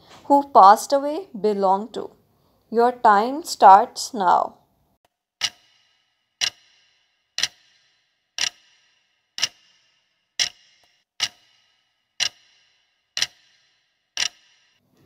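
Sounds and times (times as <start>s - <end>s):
clock ticking with brief ring: 5.4s - 14.8s.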